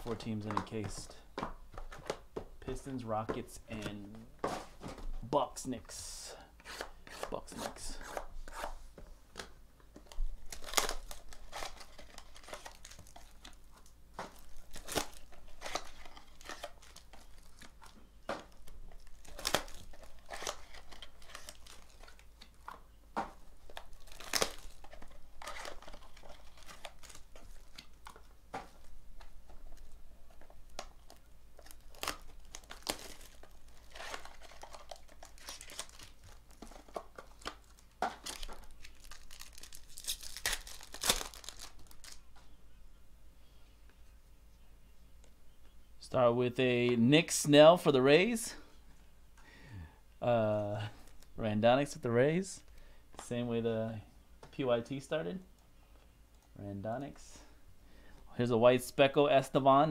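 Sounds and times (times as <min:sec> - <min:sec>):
plastic wrapping crinkling: 0:10.0 - 0:42.3
cardboard tearing: 0:19.0 - 0:22.2, 0:31.6 - 0:37.5.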